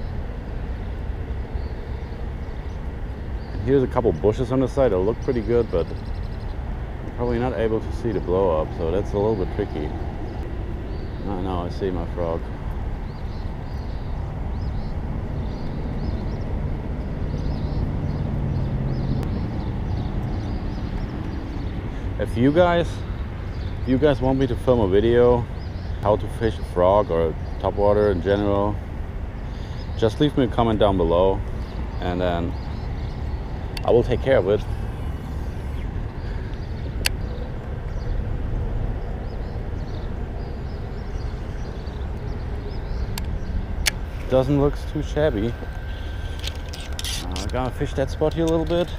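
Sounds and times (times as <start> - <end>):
highway traffic rumble: 0.0 - 48.9
heavy vehicle engine hum: 31.5 - 48.9.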